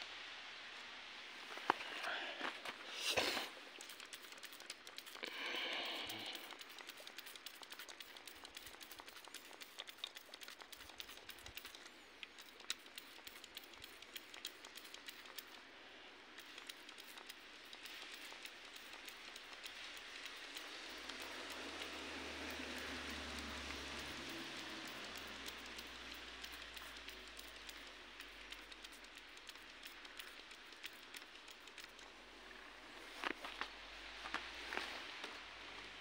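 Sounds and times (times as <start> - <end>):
small ticks and pattering: 1.5 - 15.7, 16.3 - 36.0.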